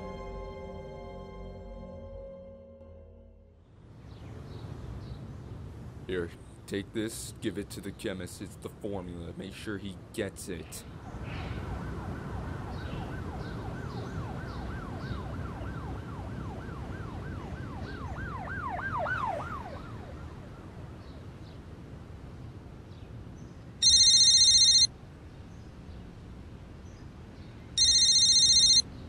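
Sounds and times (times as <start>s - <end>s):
siren yelping: 11.7s - 20.7s
mobile phone ringing: 23.8s - 24.9s, 27.8s - 28.9s.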